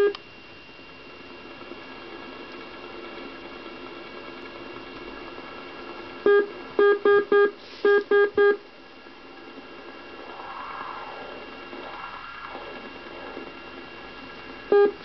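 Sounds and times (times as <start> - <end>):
morse code buzzy tone: 0.0 - 0.2, 6.3 - 8.6, 14.7 - 15.0
radio static hiss: 0.0 - 15.0.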